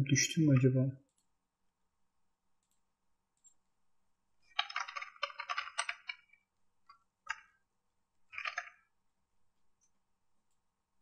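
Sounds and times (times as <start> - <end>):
computer keyboard typing: 4.5 - 6.4, 7.2 - 7.6, 8.3 - 8.9.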